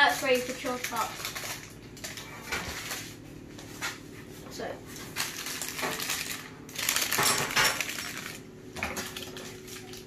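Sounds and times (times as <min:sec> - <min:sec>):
kitchenware clattering and scraping: 0:06.9 - 0:09.6.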